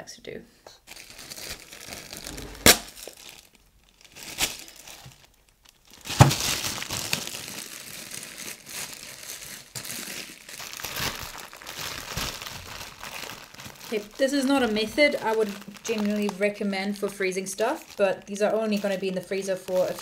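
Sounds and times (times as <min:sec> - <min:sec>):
plastic bag crinkling: 0:00.9 - 0:20.0
plastic bag snaps: 0:06.0 - 0:07.3.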